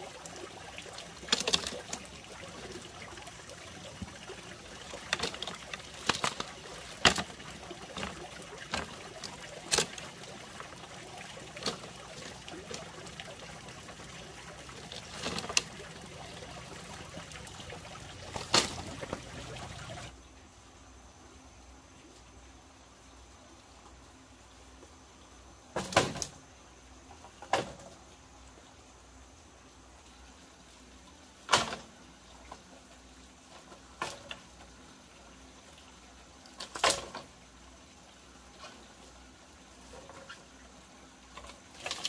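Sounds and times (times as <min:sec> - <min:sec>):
bamboo cracking and snapping: 0:05.1 - 0:07.3.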